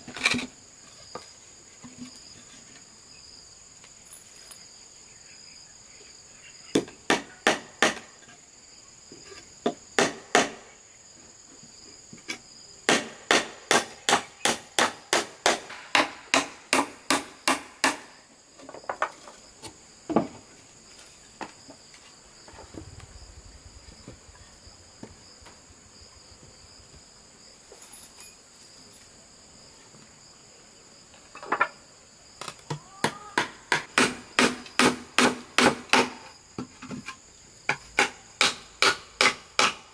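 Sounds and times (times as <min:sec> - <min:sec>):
high insect drone: 0:00.0 - 0:39.9.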